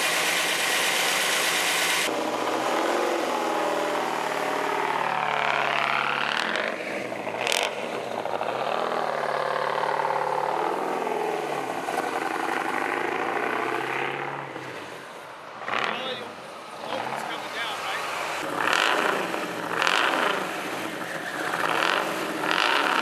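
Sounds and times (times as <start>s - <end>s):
car engine revving: 0.0s - 23.0s.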